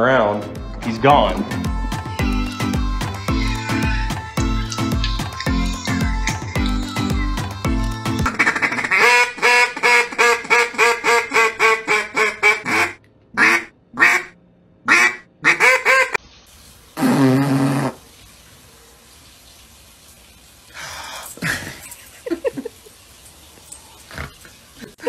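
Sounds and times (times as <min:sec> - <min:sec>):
duck call quacking: 0:08.2 - 0:16.2.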